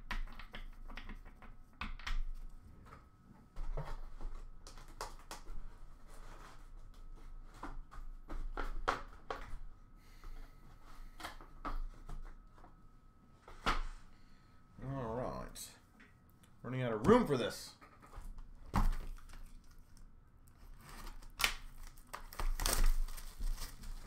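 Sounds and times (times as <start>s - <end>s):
cards tapping and clicking: 0.0s - 2.3s.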